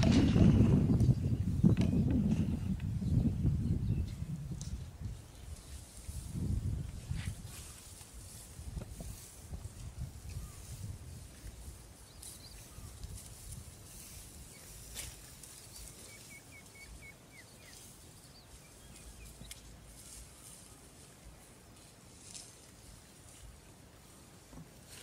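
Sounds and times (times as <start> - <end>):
low wind rumble: 0.0 - 22.2
high bird chirps: 15.8 - 19.6.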